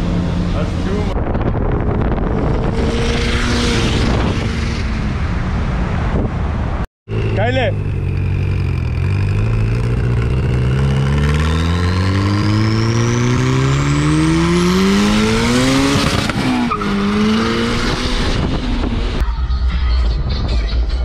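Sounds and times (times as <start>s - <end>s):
car engine accelerating hard: 7.1s - 19.2s.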